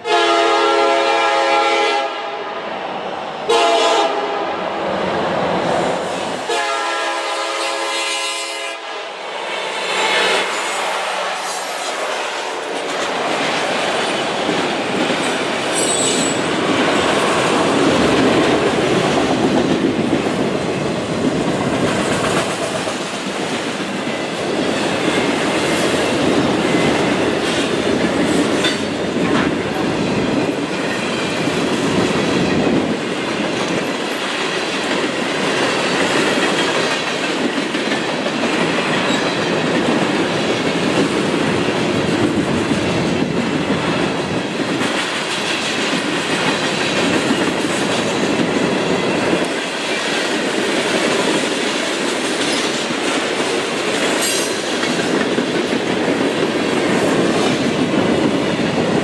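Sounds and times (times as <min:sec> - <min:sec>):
train wheels clacking over rail joints: 0:09.7 - 0:59.0
high wheel squeal: 0:15.7 - 0:16.5.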